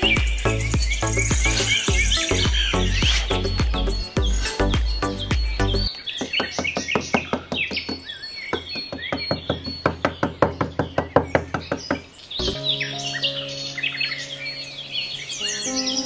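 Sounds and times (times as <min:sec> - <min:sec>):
music: 0:00.0 - 0:05.9, 0:12.4 - 0:16.0
birds chirping: 0:00.0 - 0:16.0
small hammer tapping plastic: 0:06.2 - 0:12.1.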